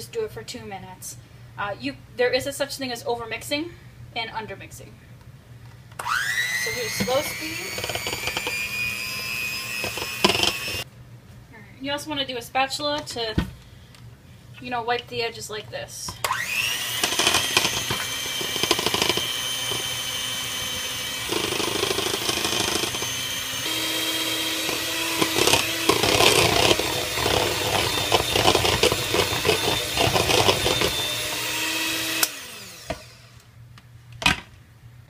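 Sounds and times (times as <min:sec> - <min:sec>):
electric hand mixer whining: 0:06.0 - 0:10.9, 0:16.2 - 0:33.4.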